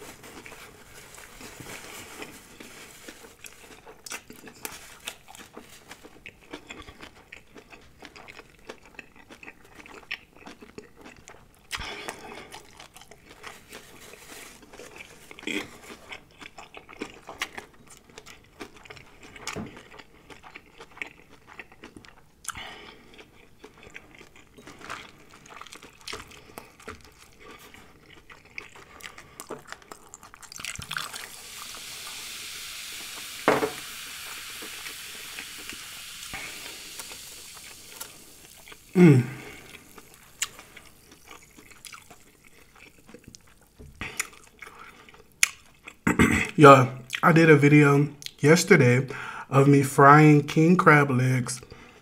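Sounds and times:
chewing fried shrimp: 0:00.0 - 0:46.3, 0:48.2 - 0:48.4
water poured into cup of ice: 0:30.5 - 0:41.8
short falling vocal sound: 0:39.0 - 0:39.5.

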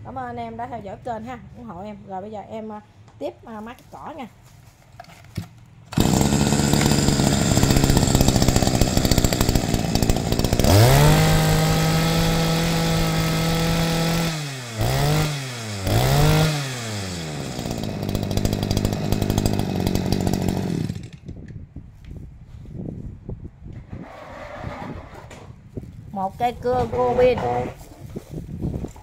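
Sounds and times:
brush cutter engine revving: 0:05.9 - 0:21.3.

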